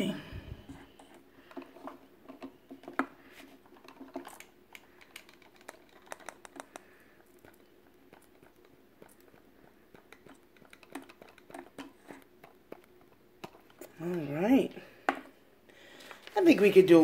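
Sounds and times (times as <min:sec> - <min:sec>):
plastic spoon tapping cup: 0:08.3 - 0:13.6.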